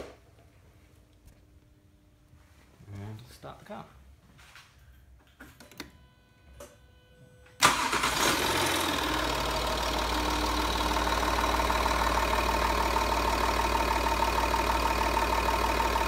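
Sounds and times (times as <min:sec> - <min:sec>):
diesel engine starting and idling: 0:07.6 - 0:16.0.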